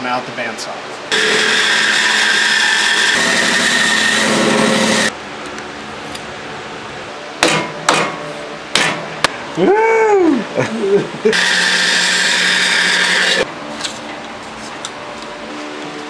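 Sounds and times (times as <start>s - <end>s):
sharp knocks: 7.4s - 9.4s.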